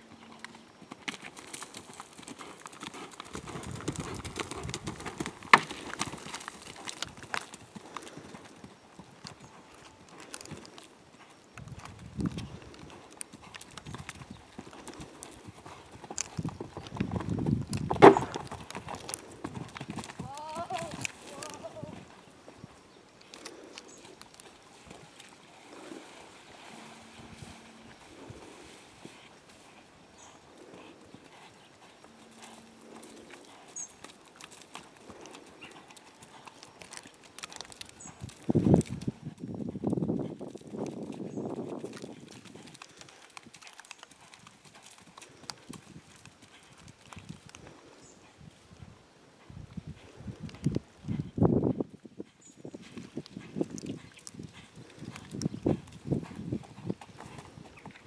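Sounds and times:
horse hoofbeats on soft ground: 0.0 - 58.0
heavy hoof thud: 11.2 - 22.6.

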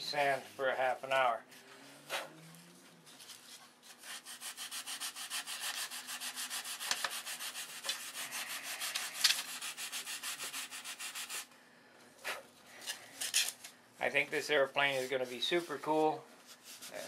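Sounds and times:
sandpaper rubbing on wood: 3.9 - 11.5, 14.6 - 17.0.

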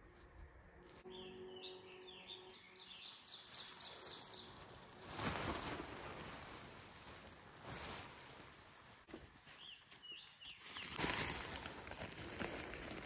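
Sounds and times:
tent fabric rustling: 3.4 - 10.0.

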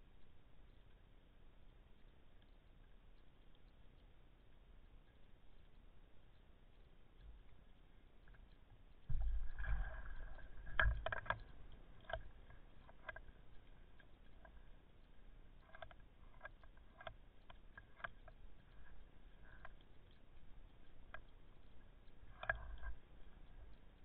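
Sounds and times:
water sloshing and splashing: 7.2 - 24.0.

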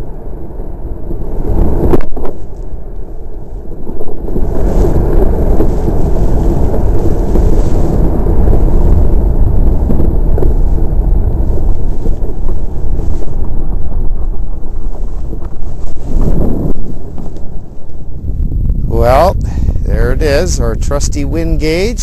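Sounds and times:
wind buffeting microphone: 0.0 - 22.0
runners sliding over ice: 3.5 - 18.0.

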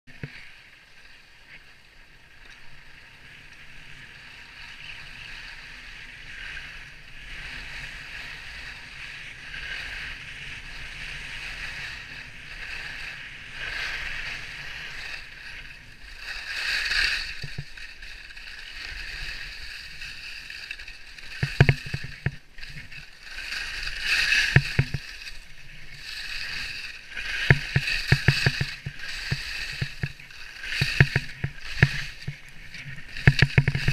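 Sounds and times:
skis scraping over snow: 0.2 - 33.9
sharp clattering knocks: 21.4 - 22.4, 24.5 - 25.0, 27.4 - 32.4, 33.1 - 33.9.

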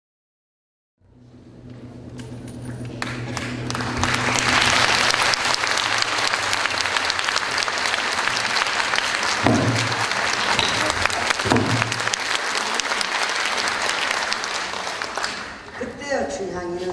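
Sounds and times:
audience applauding: 3.0 - 16.0.

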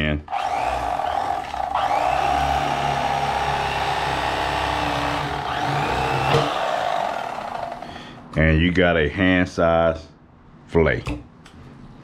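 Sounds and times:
electric knife motor buzzing: 0.3 - 8.0.

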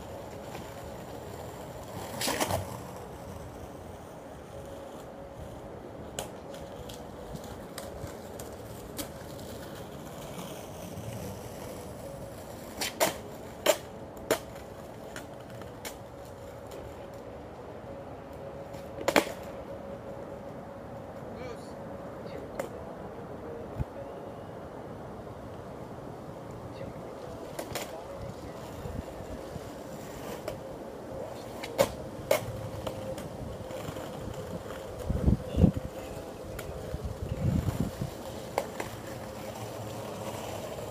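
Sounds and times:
skateboard clacks on concrete: 0.0 - 5.1, 6.0 - 17.3, 18.6 - 19.6, 27.2 - 40.9
skateboard rolling ticks: 0.0 - 21.3, 25.5 - 40.9.

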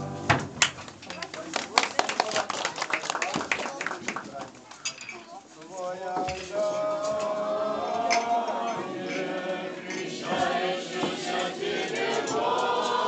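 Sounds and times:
choir of children and women singing: 6.6 - 13.0.

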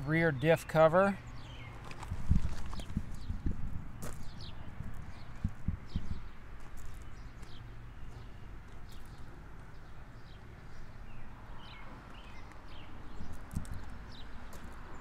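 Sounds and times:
small birds chirping: 0.2 - 15.0
footsteps crunching on gravel: 1.8 - 9.2, 12.1 - 15.0.

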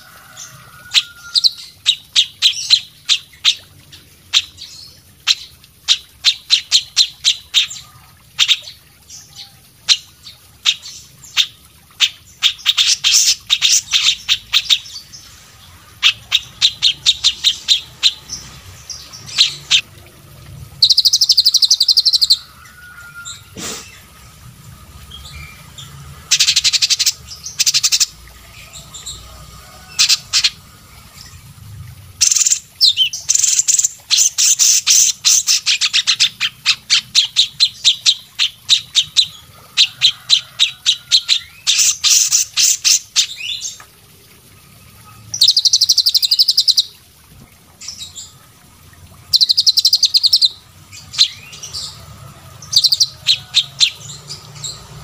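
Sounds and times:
songbirds singing rapid notes: 9.9 - 19.8, 20.8 - 24.2, 25.0 - 31.5, 49.2 - 55.0.

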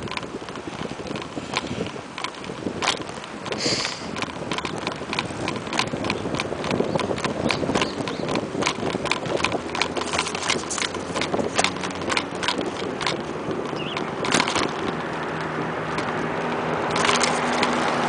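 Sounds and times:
bicycle rattling and clicking: 0.0 - 18.0
steady rushing noise: 0.0 - 18.0.

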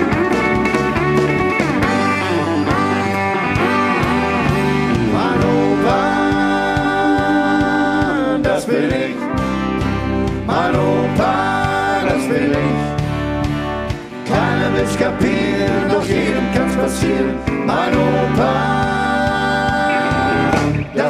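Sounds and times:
guitars: 0.0 - 21.0
steady bass: 0.0 - 21.0
man singing long held notes: 4.9 - 9.3, 10.5 - 13.0, 14.3 - 21.0.

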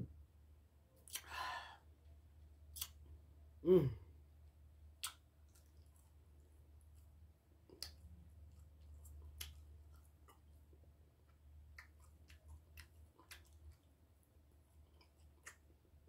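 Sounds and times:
low steady hum: 0.0 - 16.0
chewing with mouth clicks: 5.0 - 16.0.

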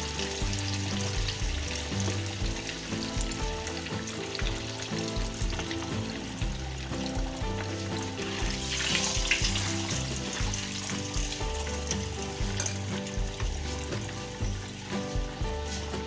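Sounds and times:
background music: 0.0 - 16.0
oil sizzling in a wok: 0.0 - 16.0.

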